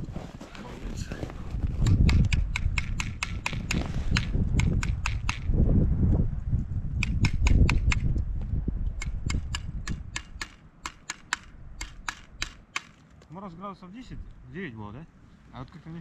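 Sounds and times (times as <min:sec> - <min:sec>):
footsteps crunching on snow: 0:00.0 - 0:01.8
wind rumble on microphone: 0:00.0 - 0:10.8.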